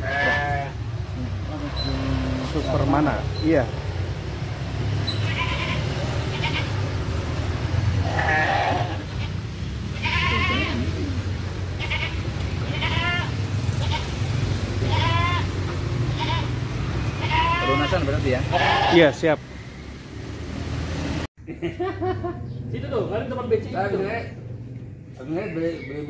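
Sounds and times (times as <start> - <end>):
goats and sheep bleating: 0.0 - 0.9, 5.2 - 7.0, 7.9 - 14.2, 14.8 - 16.6, 17.2 - 19.2.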